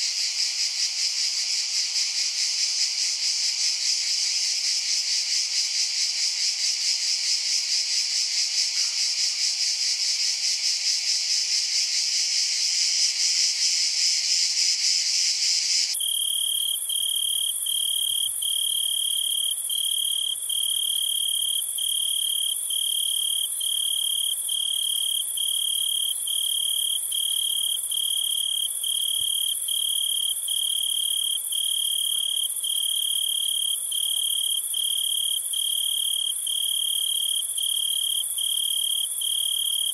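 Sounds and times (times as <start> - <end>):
cricket chirping: 0.0 - 39.9
insects buzzing: 15.9 - 39.9.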